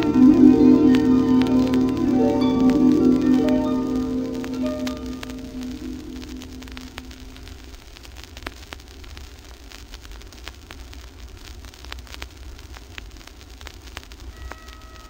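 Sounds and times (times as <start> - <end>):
held musical note: 0.0 - 7.3
vinyl crackle and clicks: 0.0 - 15.0
vinyl hiss and low rumble: 0.0 - 15.0.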